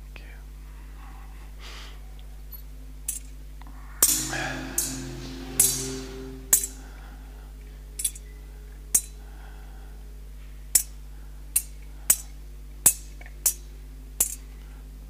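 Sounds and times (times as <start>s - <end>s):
low electrical hum: 0.0s - 15.0s
metal vessels clinking: 4.0s - 6.8s.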